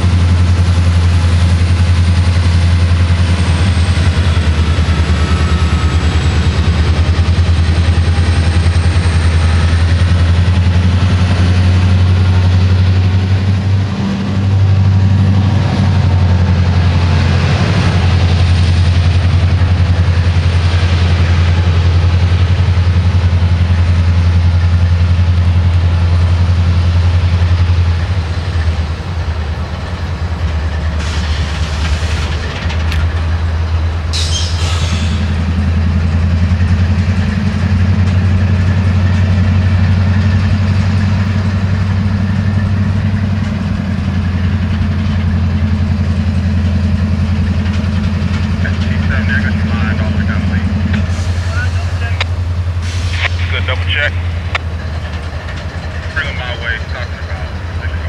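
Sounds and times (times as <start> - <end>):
locomotive engine drone: 0.0 - 58.0
short hisses: 52.8 - 53.6.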